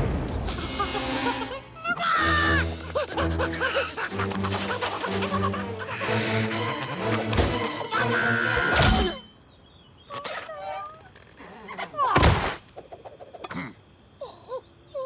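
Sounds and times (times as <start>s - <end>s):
loud crash: 0.0s - 1.4s.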